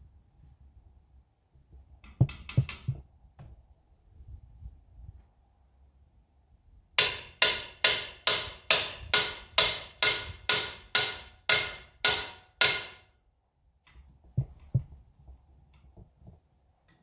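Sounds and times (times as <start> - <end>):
hammer striking metal: 7.0 - 13.1.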